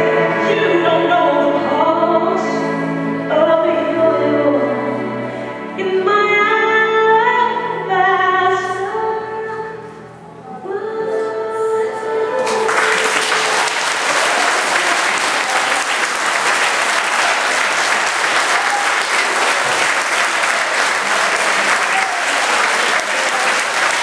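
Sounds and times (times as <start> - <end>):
congregation applauding: 12.4 - 24.0.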